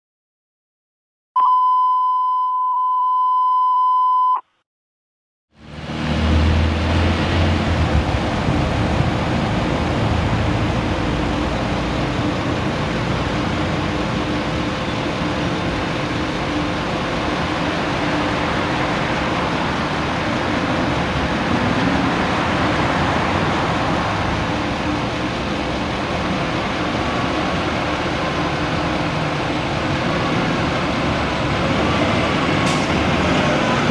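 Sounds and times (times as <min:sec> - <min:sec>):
electronic beep tone: 0:01.4 - 0:04.5
road traffic with engines: 0:05.5 - 0:33.9.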